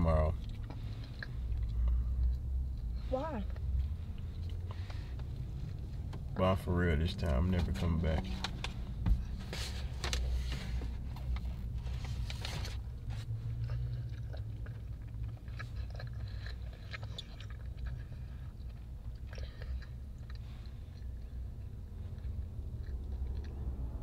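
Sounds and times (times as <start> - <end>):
person chewing crunchy food: 0.0 - 6.7, 8.8 - 24.0
low hum: 0.0 - 24.0.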